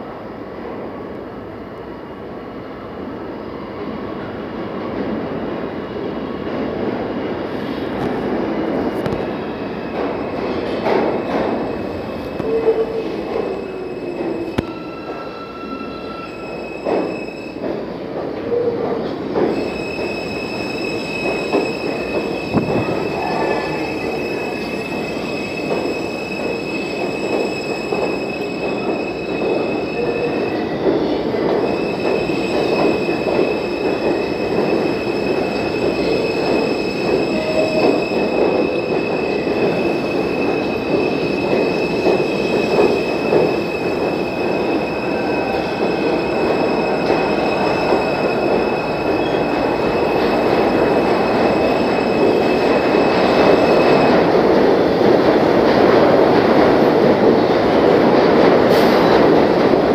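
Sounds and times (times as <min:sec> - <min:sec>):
subway train rumbling over rails: 0:00.0 - 0:59.9
high-pitched wheel squeal: 0:11.7 - 0:17.6, 0:19.5 - 0:30.8, 0:31.7 - 0:54.1.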